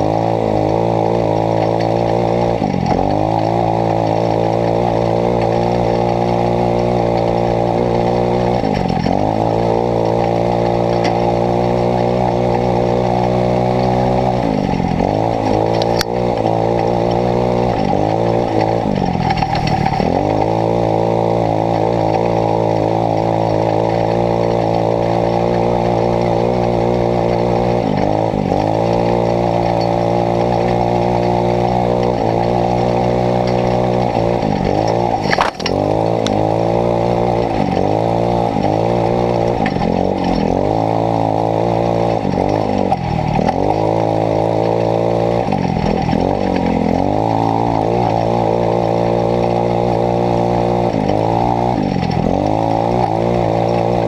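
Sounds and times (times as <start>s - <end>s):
buggy engine revving: 0.0s - 54.0s.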